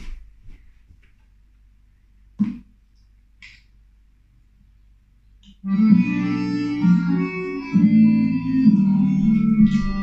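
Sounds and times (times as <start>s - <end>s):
sustained keyboard chords: 5.6s - 10.0s.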